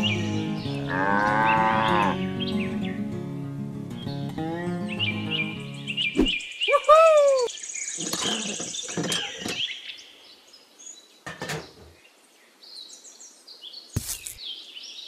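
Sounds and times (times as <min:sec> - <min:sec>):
birds chirping and twittering: 0:00.0 - 0:03.2, 0:03.9 - 0:15.0
rustling and scraping: 0:08.0 - 0:09.7, 0:14.0 - 0:14.4.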